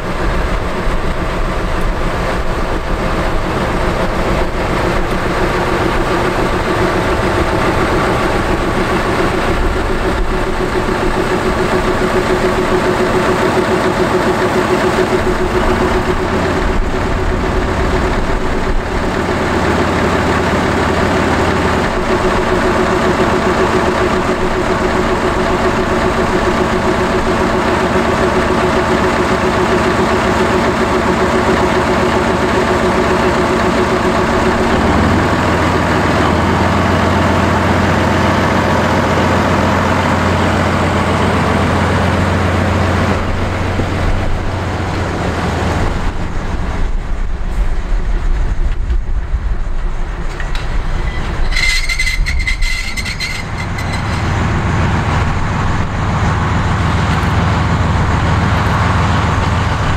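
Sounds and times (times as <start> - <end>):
diesel locomotive engine running: 0.0 - 59.9
high-pitched squeal: 49.9 - 56.8.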